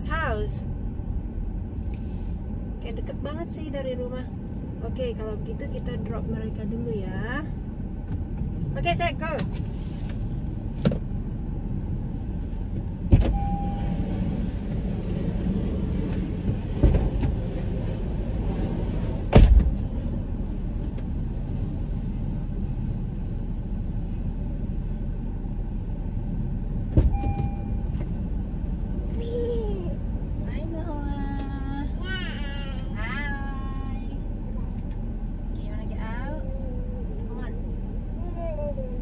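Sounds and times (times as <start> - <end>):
car doors opening and shutting: 12.7 - 14.9, 16.0 - 17.6, 19.2 - 19.9, 26.9 - 28.2
short beep: 13.3 - 14.0, 27.1 - 28.0.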